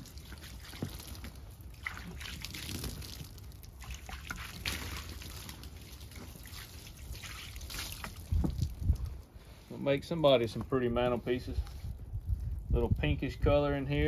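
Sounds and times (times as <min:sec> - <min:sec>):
water splashing on wooden boards: 0:00.0 - 0:09.6.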